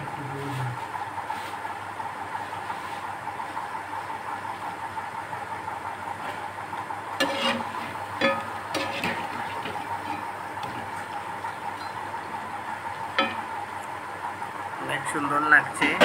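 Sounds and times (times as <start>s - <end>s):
metal spoon clinking on pan: 7.2s - 10.2s, 13.2s - 13.5s
food deep-frying in oil: 7.2s - 14.7s.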